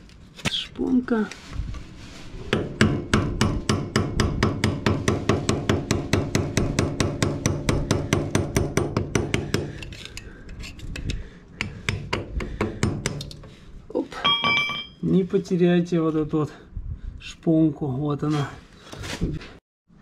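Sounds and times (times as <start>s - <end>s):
metal-on-metal tapping: 14.2s - 15.0s.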